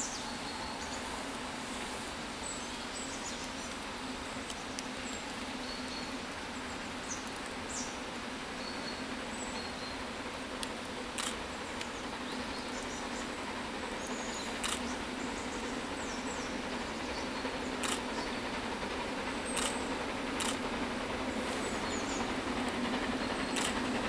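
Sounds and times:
faint clicks: 17.8s - 18.1s, 19.5s - 19.8s, 20.4s - 20.7s, 23.5s - 23.9s.

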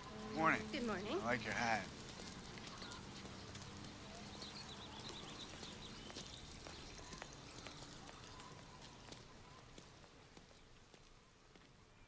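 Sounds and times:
footsteps on pavement: 1.8s - 11.8s.

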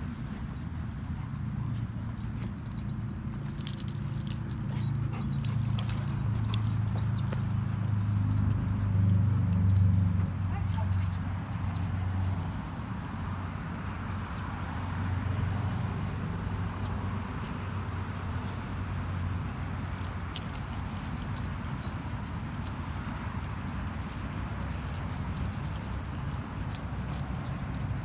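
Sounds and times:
dog collar tags jingling: 0.0s - 12.7s, 19.1s - 28.0s.

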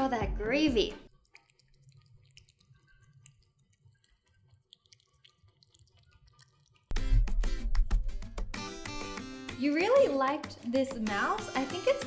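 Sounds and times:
cat chewing and lapping: 1.0s - 7.0s.

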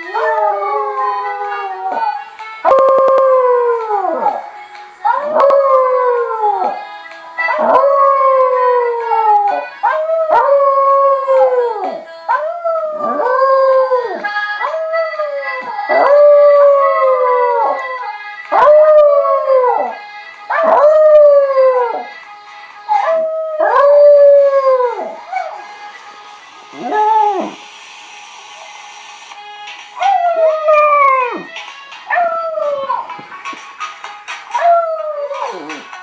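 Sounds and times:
dance-pop music from laptop: 0.0s - 21.4s, 22.0s - 36.0s
dog howling: 0.1s - 4.4s, 7.5s - 17.9s.

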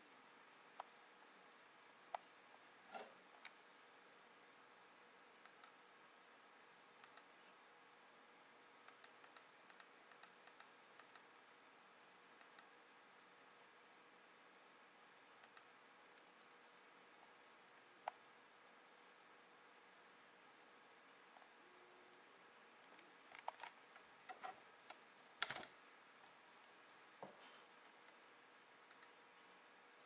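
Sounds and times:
computer mouse clicking: 5.4s - 5.8s, 7.0s - 7.4s, 8.8s - 11.3s, 12.4s - 12.7s, 15.4s - 15.7s, 22.8s - 25.7s, 28.8s - 29.2s.

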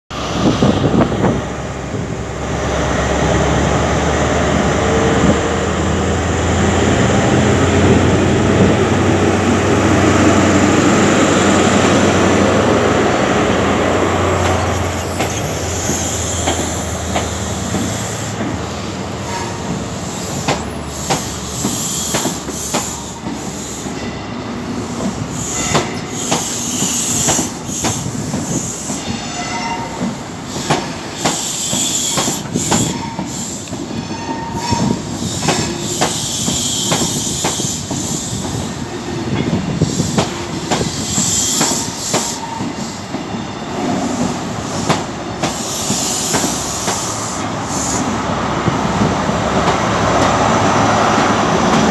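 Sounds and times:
diesel locomotive engine drone: 0.1s - 51.9s
train wheels clicking over track: 6.4s - 24.0s, 24.7s - 29.2s, 29.8s - 51.9s
high wheel squeal: 14.5s - 16.9s, 25.3s - 38.6s, 40.9s - 43.9s.

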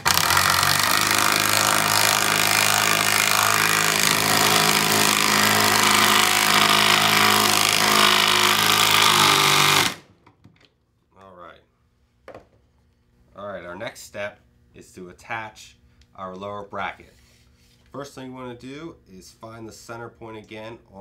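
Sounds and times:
impact driver rattling: 0.0s - 10.1s.

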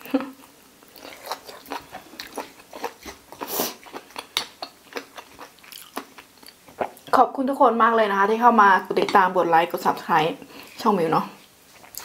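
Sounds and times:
cartilage crunching while chewing: 0.8s - 7.2s.

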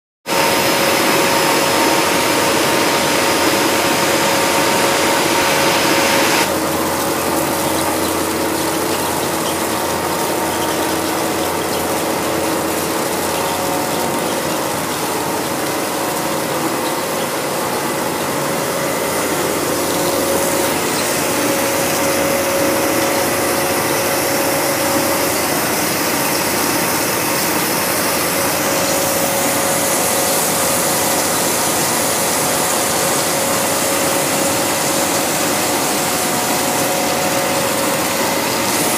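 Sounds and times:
continuous machine hum: 0.3s - 38.9s
rollers and gears rattling: 6.5s - 30.4s.

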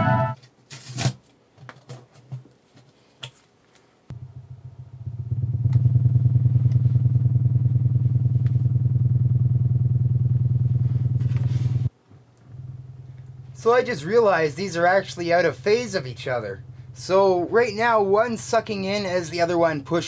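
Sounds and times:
subwoofer low buzzing hum: 4.1s - 19.6s.

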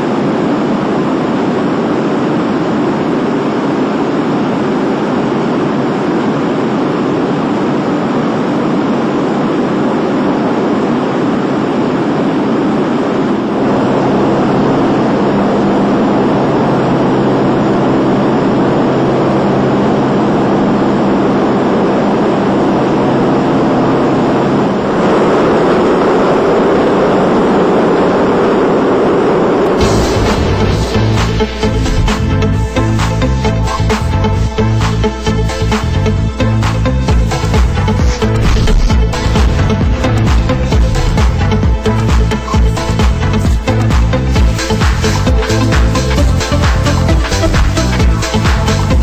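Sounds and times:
piston engine drone: 0.0s - 49.0s
steady hum: 0.0s - 49.0s
rushing air: 29.6s - 36.0s, 36.9s - 45.8s.

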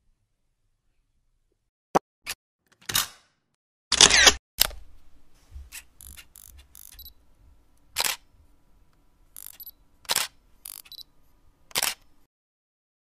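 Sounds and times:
sharp clicks: 6.0s - 7.1s, 9.4s - 11.0s.

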